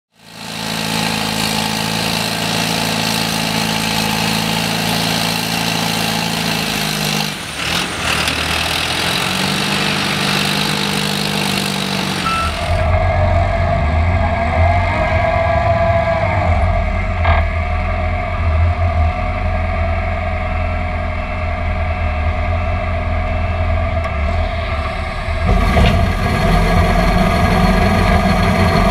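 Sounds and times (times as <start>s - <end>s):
diesel engine and hydraulics: 0.1s - 28.9s
auger drilling into ground: 0.2s - 13.0s, 24.4s - 28.9s.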